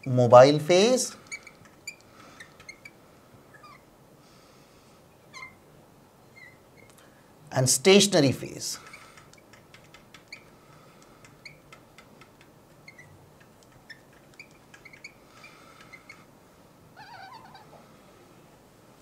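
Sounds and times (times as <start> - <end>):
marker squeaking on glass board: 1.2 - 3.8, 5.3 - 5.6, 6.3 - 6.9, 8.8 - 16.3.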